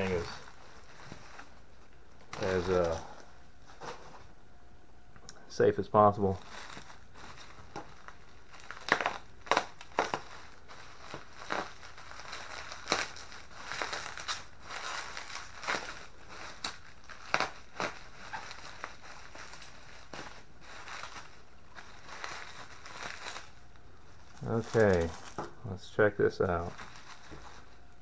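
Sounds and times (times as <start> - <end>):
bubble wrap crackling: 0.0 - 4.2, 6.3 - 25.6, 26.5 - 28.0
packing tape peeling: 6.4 - 23.6.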